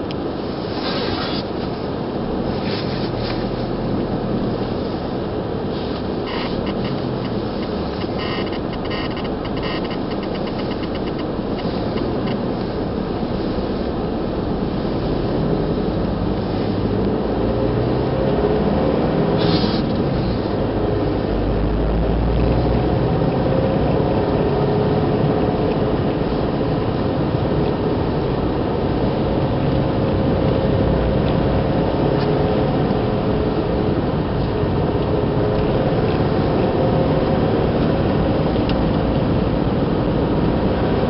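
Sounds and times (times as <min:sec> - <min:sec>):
car engine: 0:00.0 - 0:41.0
road noise on wet road: 0:00.0 - 0:41.0
light rapid ticking: 0:06.3 - 0:12.4.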